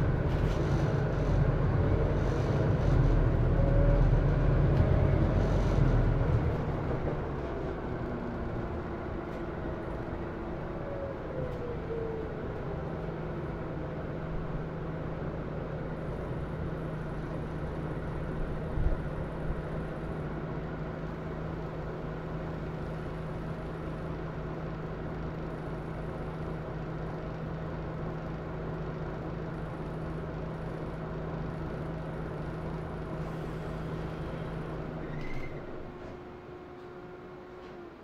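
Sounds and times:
bus engine idling hum: 0:00.0 - 0:38.0.

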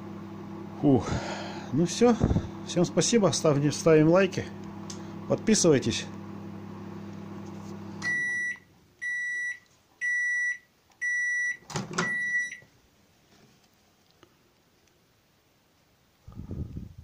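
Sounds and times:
microwave oven humming: 0:00.0 - 0:12.8
microwave timer beeps: 0:08.0 - 0:12.6.

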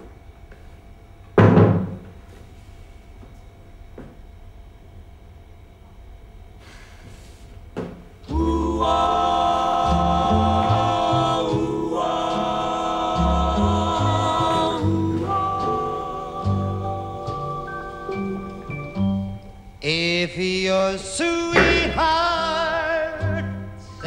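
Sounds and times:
voices singing held chords: 0:08.2 - 0:24.0
bass line: 0:08.3 - 0:19.7, 0:21.3 - 0:24.0.

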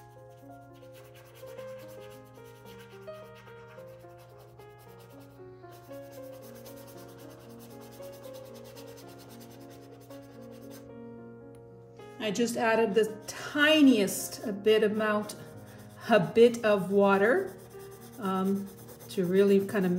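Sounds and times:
paintbrush scratching on canvas: 0:00.0 - 0:10.8, 0:15.2 - 0:19.9
soft background music: 0:00.0 - 0:19.9.

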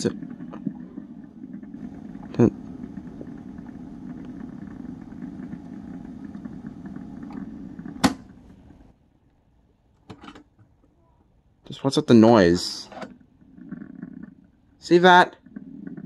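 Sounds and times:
cassette deck low buzz: 0:00.0 - 0:09.0.

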